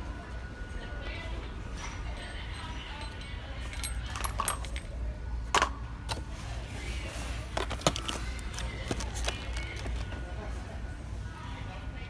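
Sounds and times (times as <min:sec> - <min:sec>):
toy boxes clicking and clinking: 0:02.2 - 0:04.9, 0:07.6 - 0:10.1.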